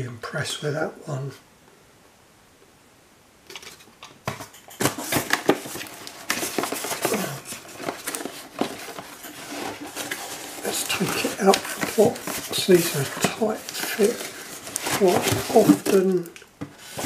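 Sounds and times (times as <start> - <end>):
cardboard boxes scraping and rustling: 4.3 - 17.0.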